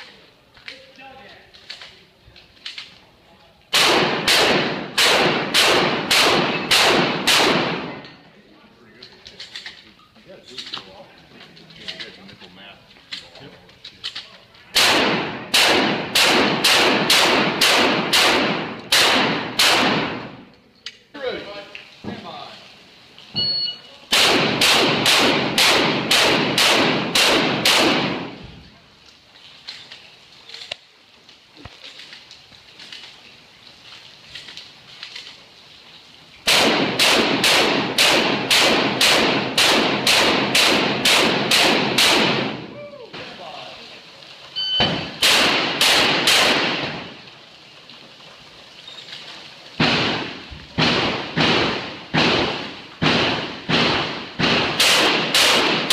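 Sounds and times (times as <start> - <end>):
shotgun shots echoing: 3.7 - 8.0, 14.8 - 20.4, 24.1 - 28.4, 36.5 - 42.7, 44.8 - 47.2, 49.8 - 55.9.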